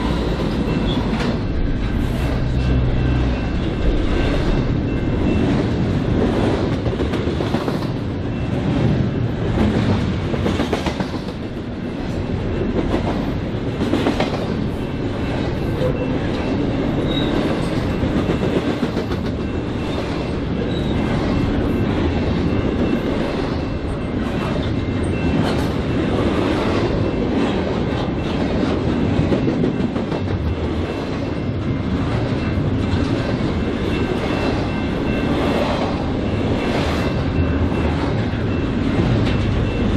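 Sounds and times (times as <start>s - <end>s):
freight train wheels clacking: 0.0s - 39.9s
train low rumble: 0.0s - 39.9s.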